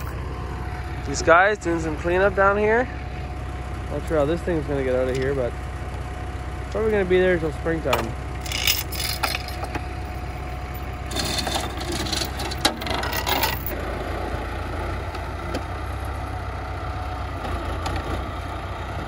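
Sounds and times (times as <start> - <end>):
tractor diesel engine running: 0.0 - 19.0
scraping and rattling: 7.9 - 9.8, 11.1 - 13.7.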